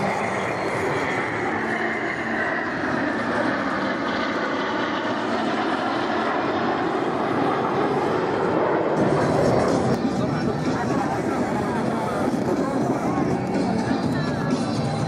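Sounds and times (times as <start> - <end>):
jets flying past: 0.0 - 15.0.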